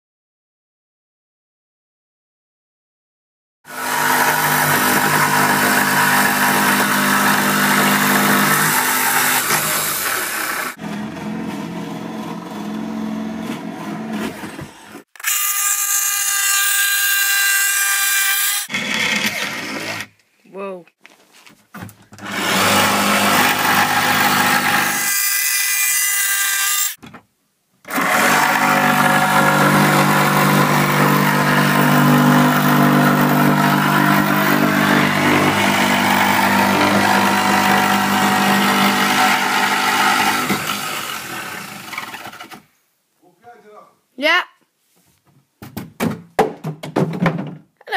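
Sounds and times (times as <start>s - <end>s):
handheld power tool whining: 3.7s - 20.2s, 22.2s - 27.0s, 27.9s - 42.7s.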